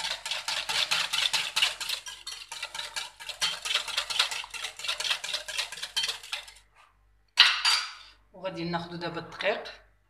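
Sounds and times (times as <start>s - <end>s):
whisk beating batter in glass bowl: 0.0s - 6.7s.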